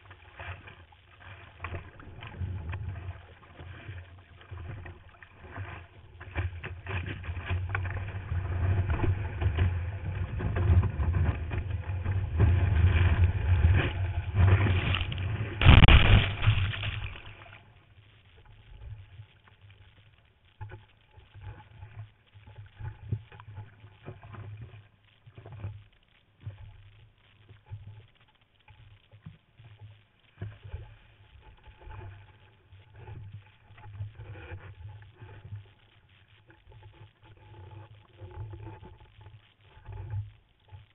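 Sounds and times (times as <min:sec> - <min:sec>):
ocean water rushing and churning: 0:00.0 - 0:18.0
water splashing and sloshing: 0:00.0 - 0:40.9.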